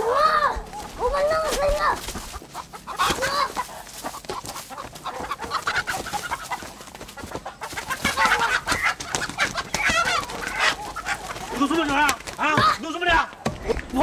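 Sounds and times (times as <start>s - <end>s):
chicken squawking and clucking: 0.0s - 14.0s
dry leaves being trampled: 0.0s - 14.0s.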